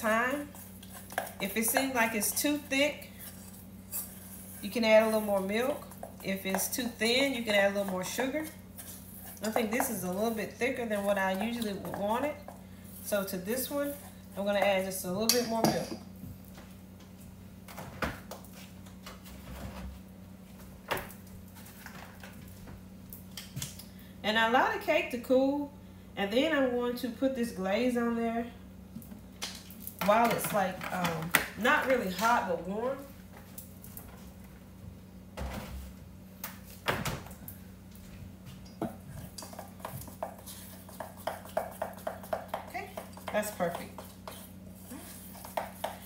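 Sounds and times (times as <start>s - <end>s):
low steady hum: 0.0s - 46.0s.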